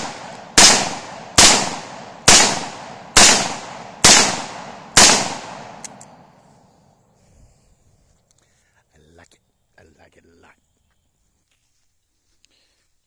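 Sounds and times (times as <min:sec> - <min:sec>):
revolver shots echoing: 0:00.0 - 0:05.9.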